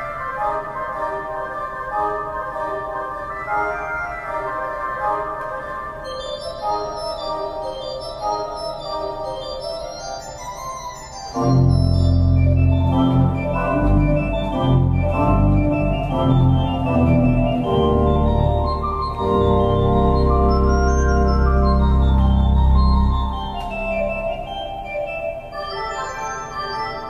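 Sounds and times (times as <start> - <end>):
organ chords: 0.0 - 27.0
deep organ bass notes: 11.4 - 25.2.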